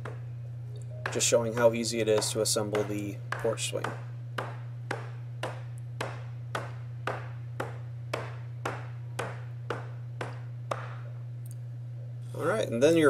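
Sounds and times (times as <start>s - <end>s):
steady low hum: 0.0s - 13.0s
rubber mallet striking wood: 1.0s - 11.2s.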